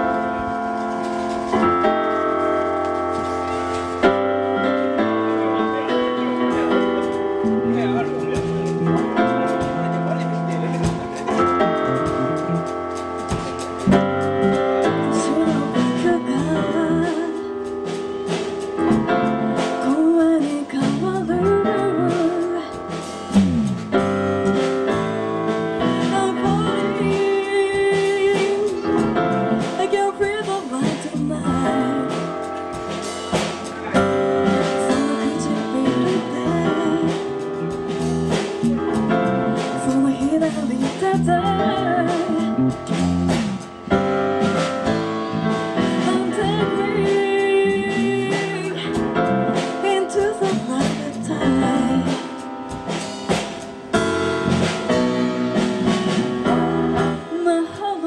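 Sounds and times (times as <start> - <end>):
live band playing: 0.0 - 58.0
woman singing: 14.8 - 17.7, 19.3 - 23.2, 25.8 - 32.5, 34.5 - 37.7, 39.6 - 43.1, 45.8 - 52.4, 56.5 - 58.0.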